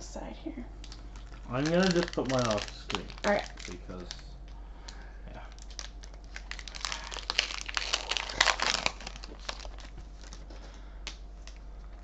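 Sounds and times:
foil wrapper tearing and crinkling: 0.8 - 4.2, 5.5 - 10.6.

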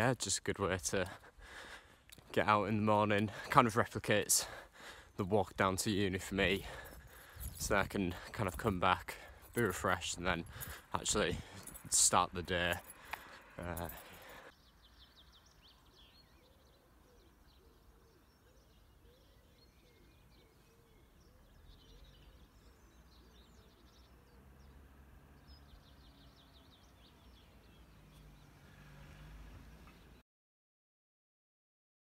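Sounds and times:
birds chirping and trilling: 0.0 - 30.2
bird cooing: 16.4 - 23.8.

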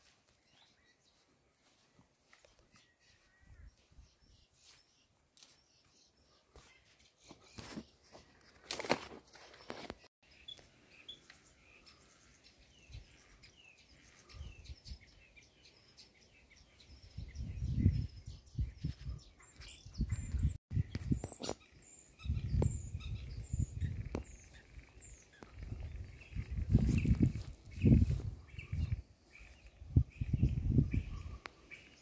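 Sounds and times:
songbirds chirping: 0.0 - 32.0
low rumbles on microphone: 25.5 - 29.0, 29.8 - 31.4.

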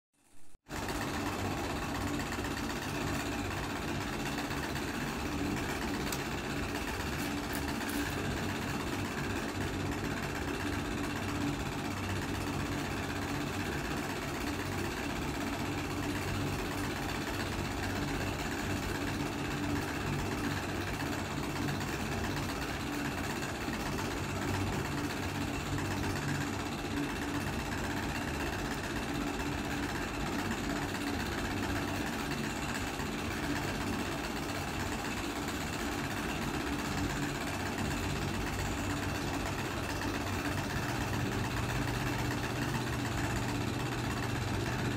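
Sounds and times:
motor humming: 0.7 - 29.7.

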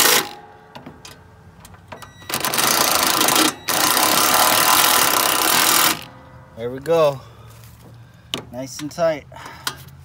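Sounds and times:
impact driver hammering: 2.3 - 6.2.

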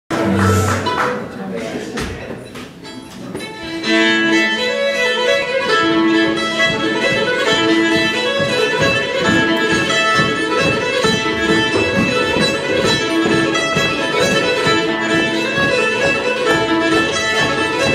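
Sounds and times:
upright bass: 0.1 - 1.3
guitar: 0.1 - 1.4, 2.4 - 17.9
mandolin: 0.1 - 17.9
fiddle: 2.8 - 17.9.

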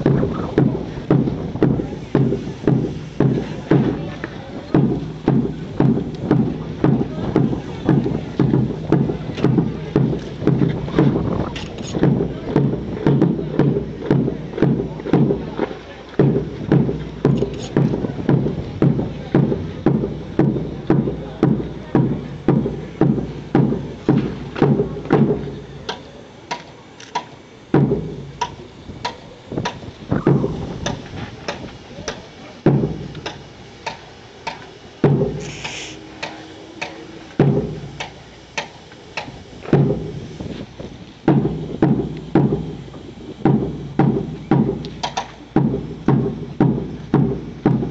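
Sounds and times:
drum beating: 0.0 - 26.0, 27.7 - 31.8, 32.6 - 47.9.

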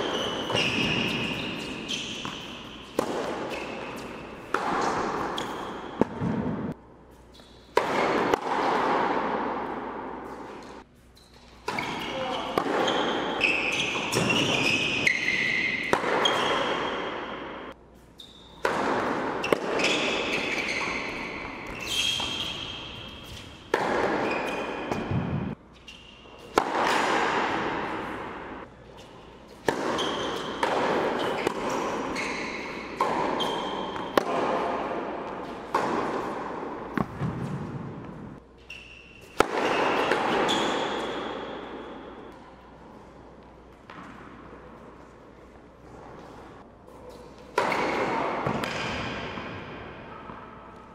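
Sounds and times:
racket striking tennis ball: 0.0 - 6.8, 7.7 - 10.8, 11.5 - 17.8, 18.6 - 25.6, 26.4 - 38.4, 39.2 - 42.4, 47.1 - 50.4
sneakers squeaking on court: 0.0 - 8.1, 10.2 - 34.7, 36.9 - 42.4
tennis ball bouncing: 0.1 - 6.8, 7.7 - 10.8, 11.6 - 17.7, 18.6 - 25.6, 26.4 - 28.5, 29.5 - 38.3, 39.2 - 42.4, 47.1 - 49.6.

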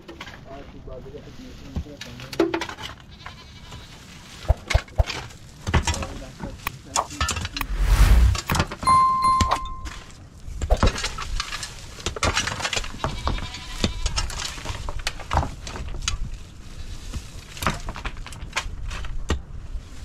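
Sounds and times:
livestock bleating: 13.3 - 14.0.

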